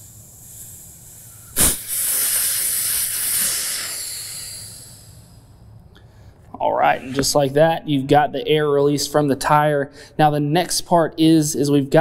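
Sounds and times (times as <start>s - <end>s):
air rushing from tire valve: 0.0s - 5.5s.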